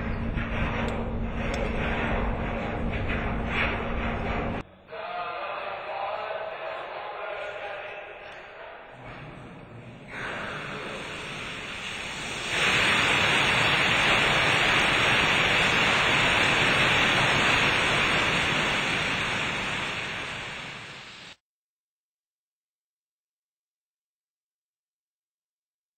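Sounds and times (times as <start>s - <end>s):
water jetting from pipe: 10.0s - 21.4s.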